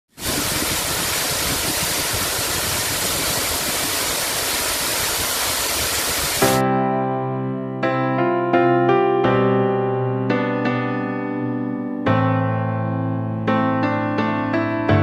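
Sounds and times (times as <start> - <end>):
steady rushing noise: 0.1 - 6.6.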